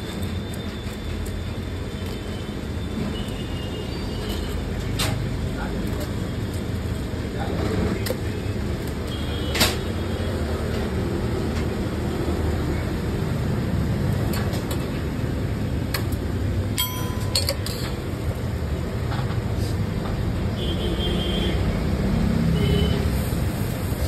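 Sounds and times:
street background rumble: 0.0 - 24.0
sharp clinks: 16.8 - 18.0.

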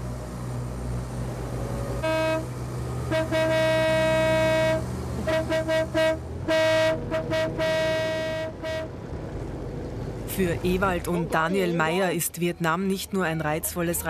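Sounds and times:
boat engine humming: 0.0 - 14.0
boat horn tooting: 2.0 - 9.0.

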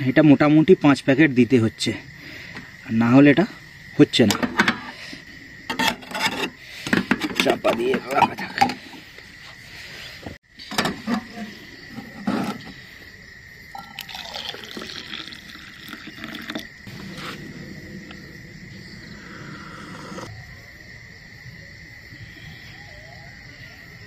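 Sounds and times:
tea pouring into metal mug: 13.8 - 18.2.

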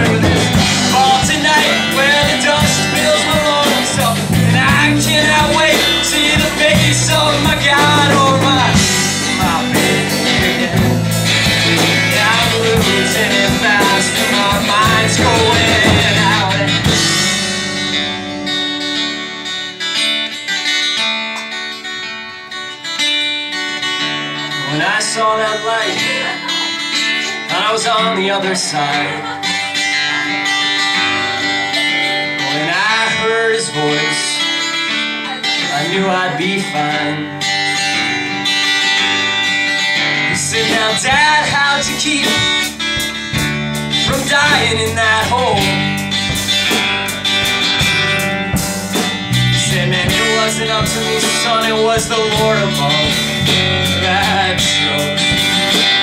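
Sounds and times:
sliding melody line: 0.0 - 18.0
strummed acoustic guitar: 0.0 - 56.0.

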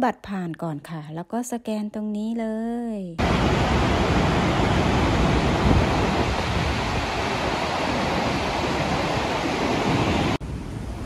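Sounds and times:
waterfall rushing: 3.2 - 10.4.

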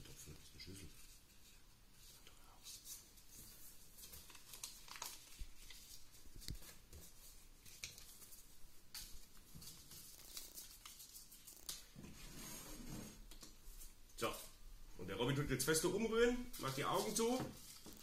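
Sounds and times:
paper rustling and crackling: 0.0 - 12.5, 16.2 - 18.0.

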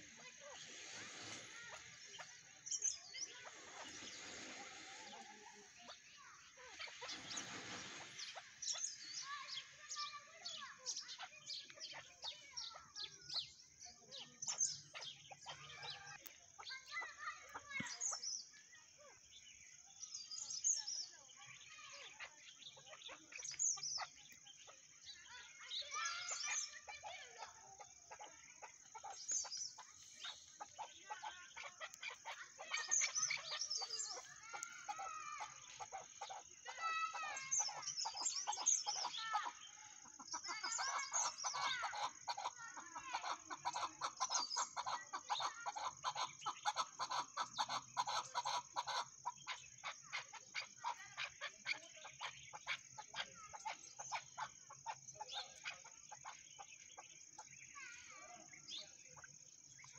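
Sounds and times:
partridge clucking calls: 0.0 - 13.5, 25.3 - 57.8.

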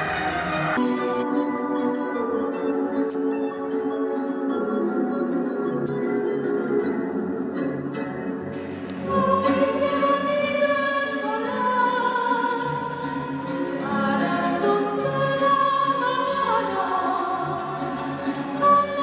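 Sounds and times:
choir singing held notes: 8.5 - 19.0.

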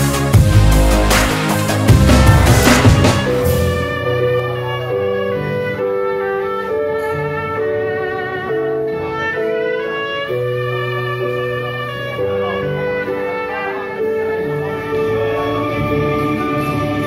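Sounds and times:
low bass accompaniment: 0.4 - 4.8
violin melody: 1.9 - 5.2.

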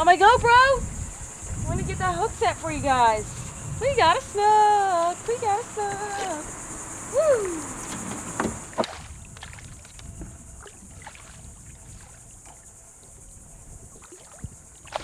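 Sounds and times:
water sloshing: 0.0 - 15.0
fish splashing at the surface: 8.7 - 12.7, 13.9 - 15.0.

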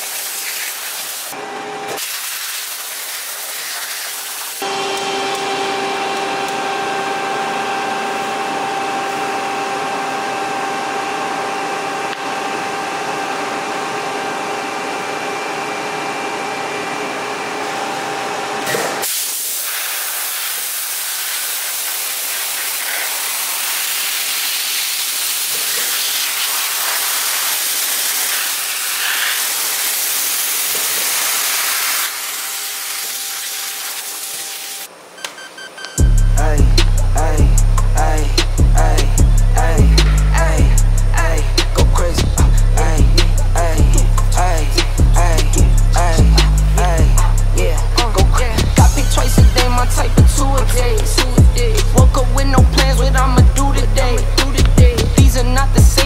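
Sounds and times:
dry ice blaster hissing: 0.0 - 9.5, 18.6 - 34.9, 36.0 - 56.0
steady hum: 34.8 - 56.0.

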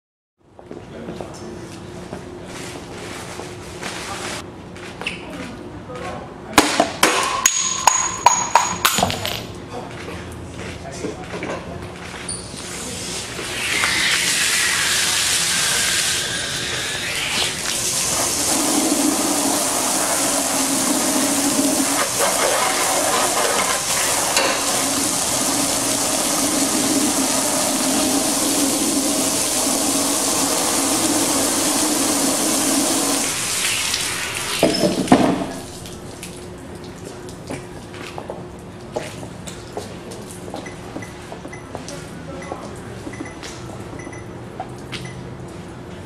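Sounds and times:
water spray splashing: 12.8 - 36.6
water pouring: 13.5 - 37.0.

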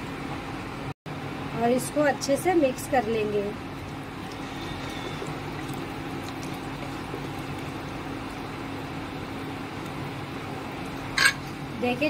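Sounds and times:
background hum: 1.2 - 12.0
wooden spoon stirring in a pot: 3.7 - 10.0.

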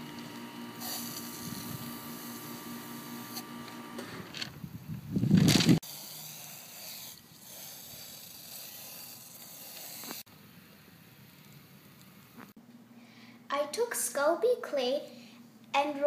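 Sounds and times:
spray-paint can hissing: 0.8 - 2.4, 5.8 - 10.3.

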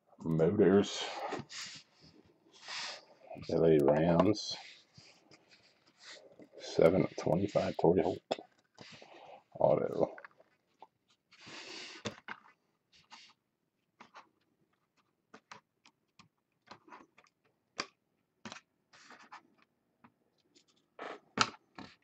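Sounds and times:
cards rustling: 1.4 - 13.4, 18.5 - 19.7.

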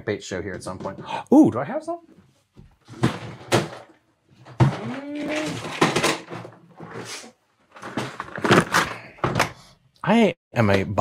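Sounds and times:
plastic tackle boxes clattering: 2.8 - 9.4.

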